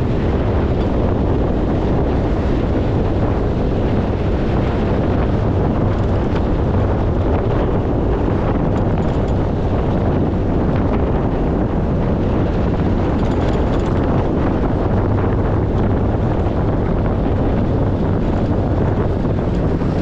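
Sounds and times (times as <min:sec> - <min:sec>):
motorcycle engine: 0:00.0 - 0:20.0
road noise: 0:00.0 - 0:20.0
wind buffeting microphone: 0:00.0 - 0:20.0.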